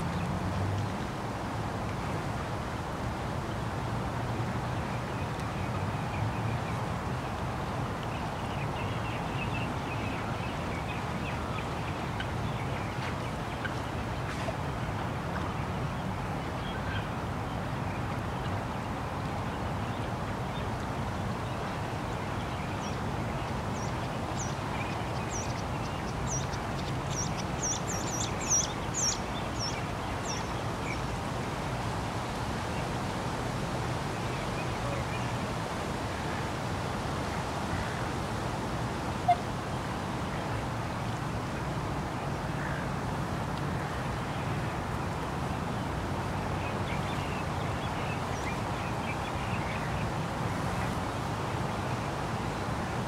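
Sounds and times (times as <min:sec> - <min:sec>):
distant traffic hum: 0:00.0 - 0:53.0
birds chirping: 0:21.5 - 0:31.2.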